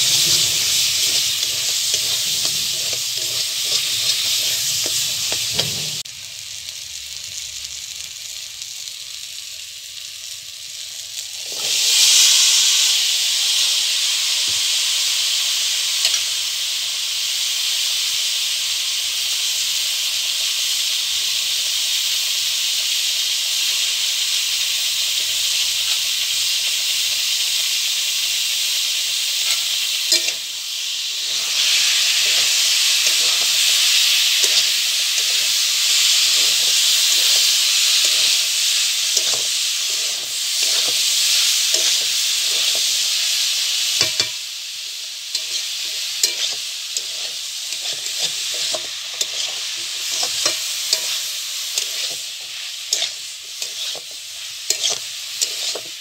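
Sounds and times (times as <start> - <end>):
spatula scraping pan: 0.0 - 6.0, 29.4 - 30.5, 31.1 - 43.0, 45.4 - 56.0
food sizzling in oil: 0.0 - 56.0.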